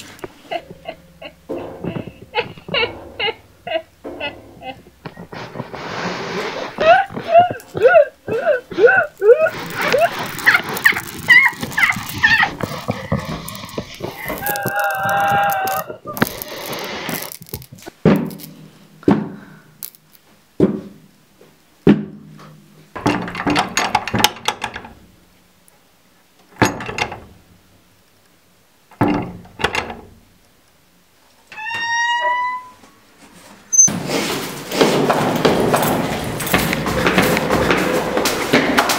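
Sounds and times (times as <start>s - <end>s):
thuds and knocks: 20.6s - 21.0s, 21.8s - 22.4s, 33.9s - 38.9s.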